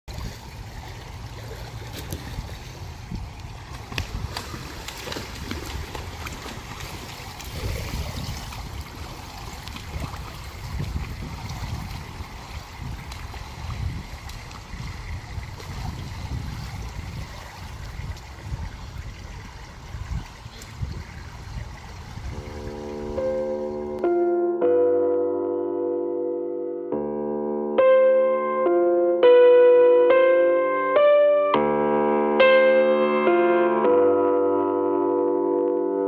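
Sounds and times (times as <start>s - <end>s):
small water splashes: 0.1s - 23.2s
pool water lapping and sloshing: 0.1s - 24.1s
low rumble: 22.3s - 24.2s.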